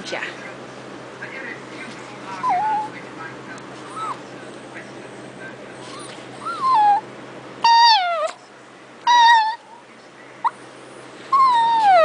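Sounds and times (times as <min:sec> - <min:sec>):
small dog whining: 0:02.3 - 0:03.0, 0:03.8 - 0:04.3, 0:05.8 - 0:09.8, 0:11.3 - 0:12.0.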